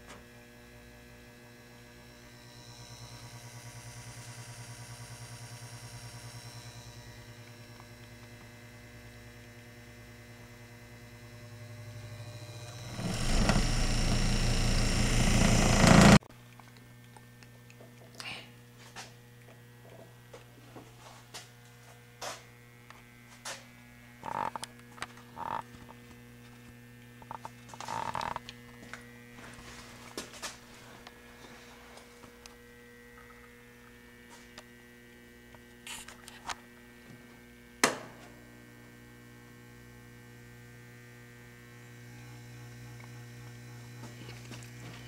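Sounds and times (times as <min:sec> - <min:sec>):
motor whine: 0:00.0 - 0:16.2, 0:21.6 - 0:30.2, 0:38.4 - 0:45.0
electric mixer motor humming: 0:01.7 - 0:16.2.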